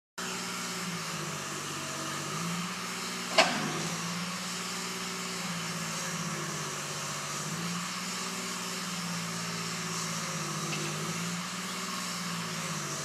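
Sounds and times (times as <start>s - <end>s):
backhoe engine running: 0.2s - 13.0s.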